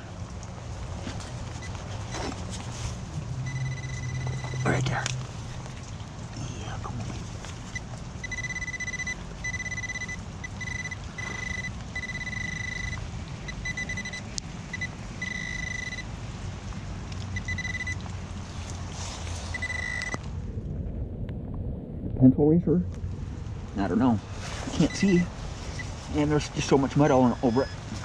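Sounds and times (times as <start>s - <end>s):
low background rumble: 0.0s - 28.0s
pinpointer beeping: 3.4s - 4.8s, 8.2s - 16.1s, 17.4s - 18.0s, 19.5s - 20.2s, 24.8s - 25.9s, 27.2s - 27.8s.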